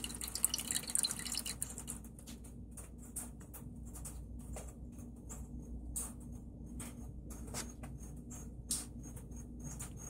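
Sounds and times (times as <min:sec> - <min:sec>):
coolant bubbles trickling: 0:00.0 - 0:02.4.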